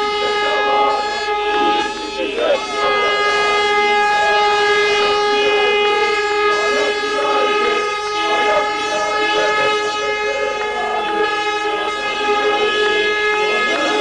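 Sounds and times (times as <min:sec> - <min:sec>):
horn long blast: 0:00.0 - 0:14.0.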